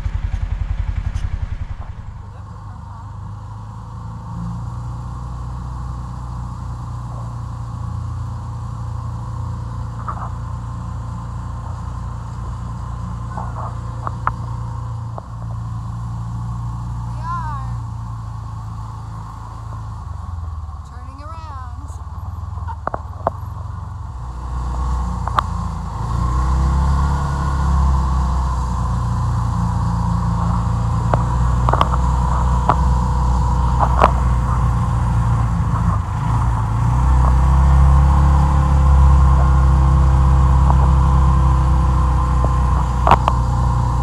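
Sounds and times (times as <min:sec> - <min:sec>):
knocks and rattles: 0:00.0 - 0:02.4
car engine and road rumble: 0:00.0 - 0:44.0.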